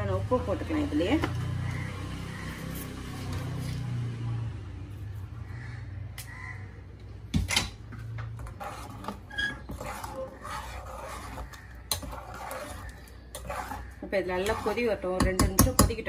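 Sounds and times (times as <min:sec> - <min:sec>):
metal spoon scraping a metal pan: 0:08.4 - 0:16.0.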